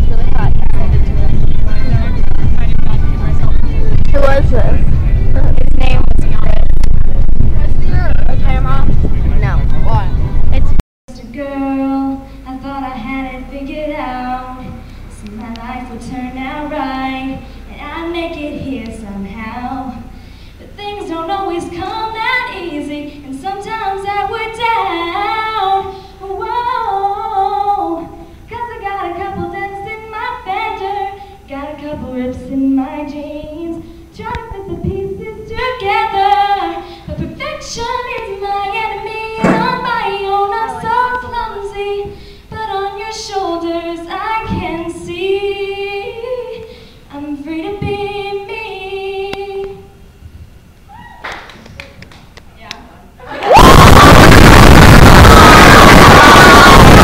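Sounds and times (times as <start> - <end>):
girl singing into microphone: 11.1 - 50.0.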